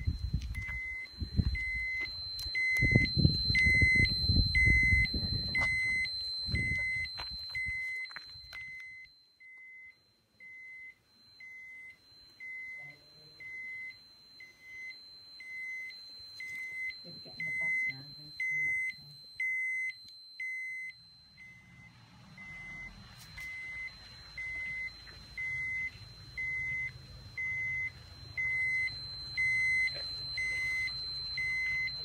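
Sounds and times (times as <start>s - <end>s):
high electronic alarm beeps: 0.0s - 32.0s.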